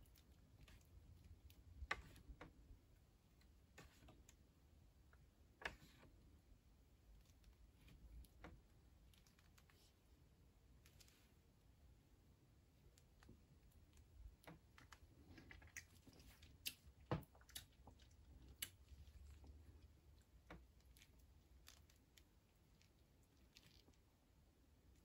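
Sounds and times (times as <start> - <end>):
faint chewing: 12.9 - 24.1.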